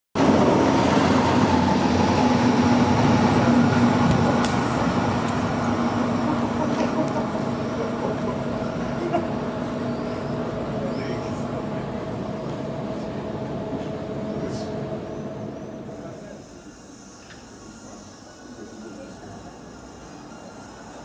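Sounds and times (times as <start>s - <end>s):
locomotive mechanical drone: 0.2s - 21.0s.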